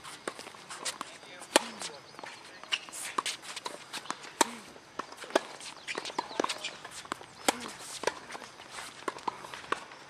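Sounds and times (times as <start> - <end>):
tennis shoes scuffing: 0.0 - 10.0
tennis ball struck by rackets: 0.2 - 2.0, 2.6 - 8.4
tennis ball bouncing on hard court: 0.2 - 10.0.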